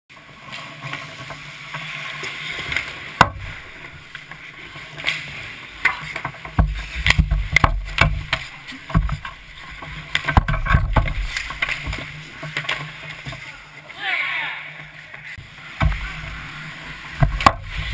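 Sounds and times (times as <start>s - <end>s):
skate blades scraping on ice: 4.3s - 13.6s.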